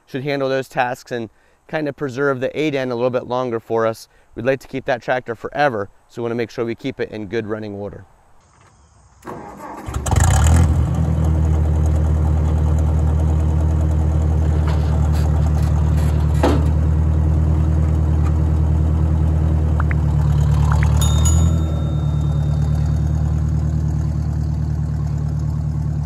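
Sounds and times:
tractor engine idling: 0:10.8 - 0:26.0.

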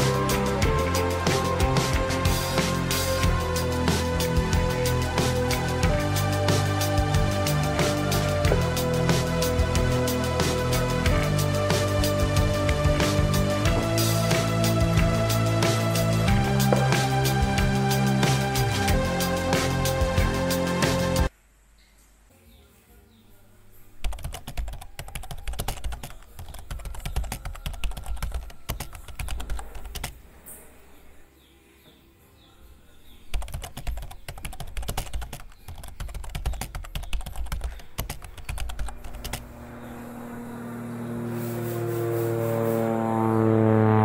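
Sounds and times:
droning tone with overtones: 0:38.9 - 0:44.0.

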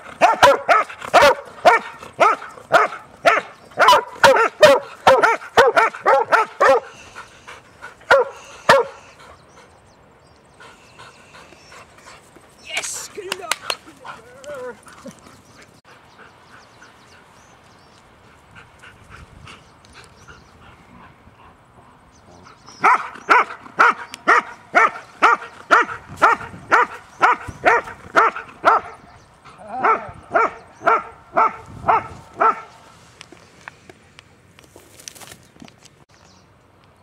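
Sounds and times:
dog barking: 0:00.2 - 0:06.9, 0:08.1 - 0:09.0, 0:22.8 - 0:29.0, 0:29.8 - 0:32.7.

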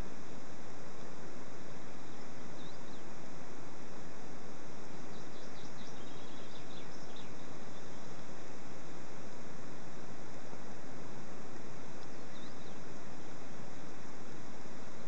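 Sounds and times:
background hiss: 0:00.0 - 0:15.0
faint high bird chirps: 0:01.9 - 0:03.2, 0:04.9 - 0:08.7, 0:12.0 - 0:13.6.

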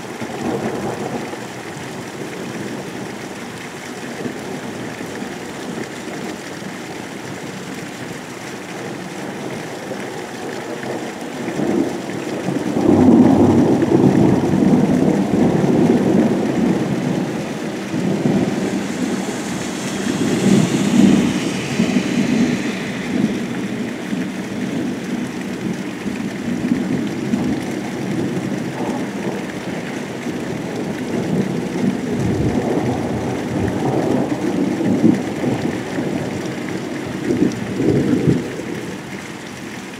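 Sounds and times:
rain hissing: 0:00.0 - 0:39.9
thunder rumbling: 0:07.4 - 0:38.9.

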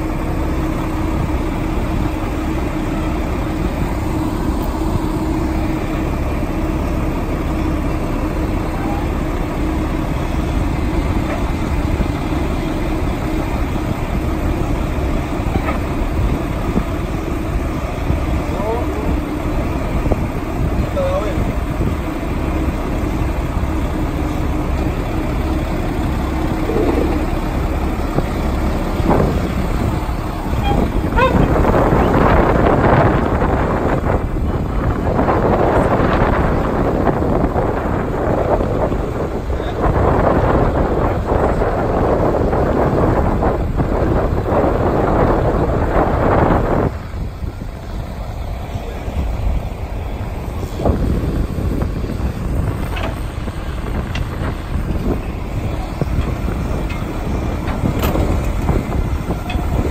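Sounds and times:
diesel engine running: 0:00.0 - 0:59.9
wind buffeting microphone: 0:00.0 - 0:59.9
metallic knocks of track: 0:56.1 - 0:58.8.

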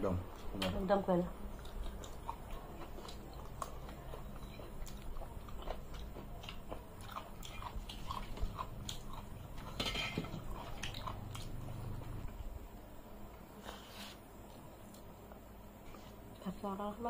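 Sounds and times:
wet chewing and smacking: 0:01.4 - 0:12.4.

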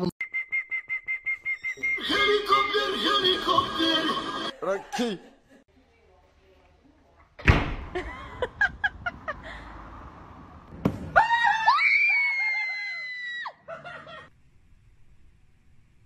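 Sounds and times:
thump: 0:07.4 - 0:08.1, 0:10.7 - 0:11.2.

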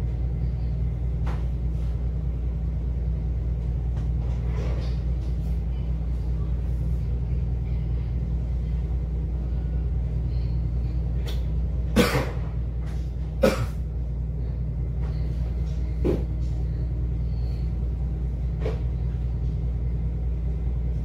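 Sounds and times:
ferry engines rumbling: 0:00.0 - 0:21.0.

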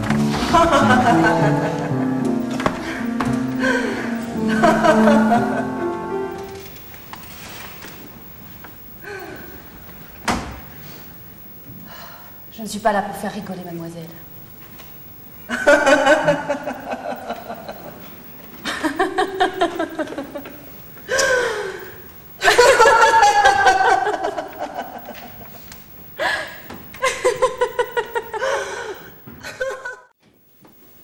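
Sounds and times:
woman laughing hard: 0:00.4 - 0:03.0, 0:03.6 - 0:05.8, 0:15.5 - 0:18.0, 0:22.4 - 0:25.5, 0:27.0 - 0:28.8, 0:29.4 - 0:30.1
woman breathing: 0:02.7 - 0:04.3, 0:09.0 - 0:09.6, 0:10.8 - 0:12.5, 0:21.0 - 0:22.0, 0:26.2 - 0:26.7, 0:28.4 - 0:29.2.

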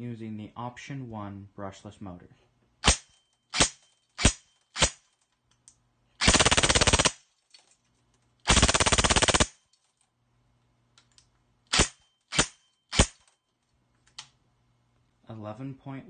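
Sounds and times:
airsoft gun firing shots: 0:02.8 - 0:05.0, 0:06.2 - 0:07.2, 0:08.5 - 0:09.6, 0:11.7 - 0:13.2
full-auto bursts: 0:06.2 - 0:07.2, 0:08.5 - 0:09.6, 0:11.7 - 0:13.2.

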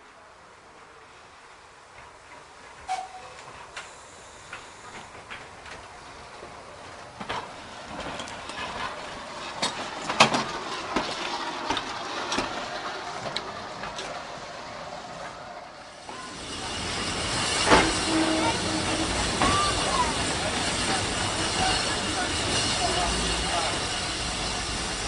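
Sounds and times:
steam locomotive moving slowly: 0:00.0 - 0:25.0
hiss of escaping steam: 0:02.7 - 0:05.4, 0:14.4 - 0:25.0.

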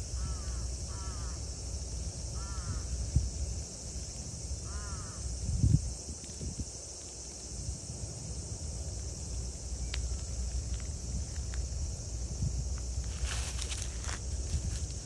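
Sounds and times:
high-pitched insect drone: 0:00.0 - 0:15.0
faint ticks: 0:09.3 - 0:11.7
dry leaves rustling: 0:12.8 - 0:15.0.

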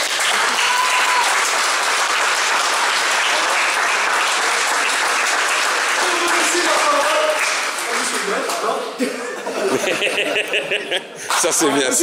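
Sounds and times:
audience applauding: 0:00.0 - 0:09.0.

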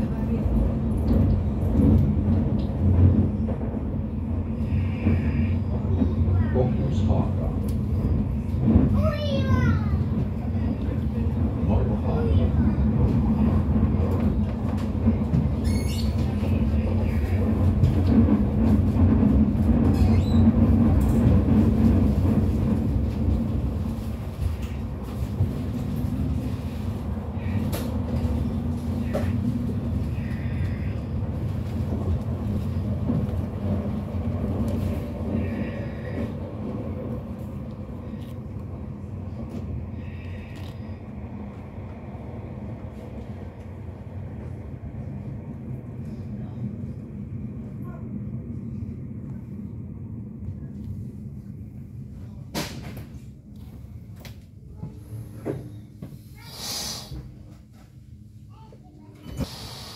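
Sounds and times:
train rumbling on track: 0:00.0 - 0:59.9.

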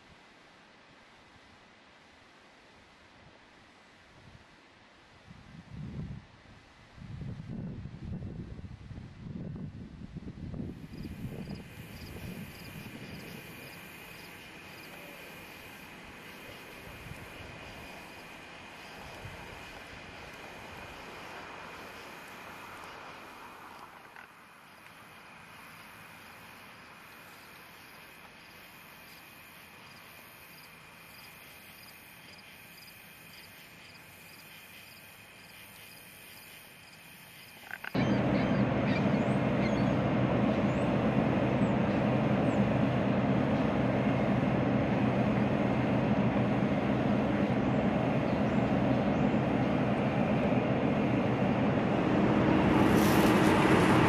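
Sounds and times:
insects chirring: 0:10.8 - 0:39.1
loud steady rumbling: 0:38.0 - 0:54.0
low hum: 0:38.0 - 0:54.0.

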